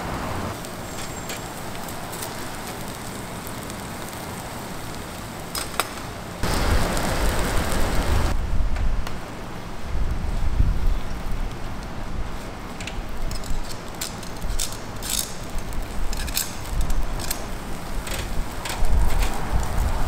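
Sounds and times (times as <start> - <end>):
shellfish sizzling on a grill: 0.5 - 8.4, 12.0 - 20.0.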